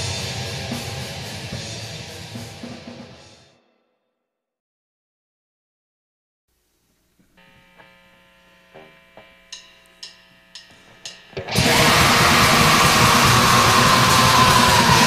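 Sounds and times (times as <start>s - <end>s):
metal band with distorted guitars: 0.0s - 3.5s, 10.6s - 15.0s
faint amplifier hum: 6.5s - 11.6s
held guitar tones: 6.8s - 15.0s
sharp ticks: 8.8s - 11.2s.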